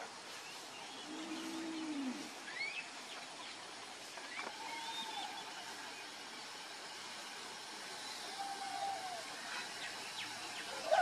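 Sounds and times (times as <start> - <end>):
steady hiss: 0.0 - 11.0.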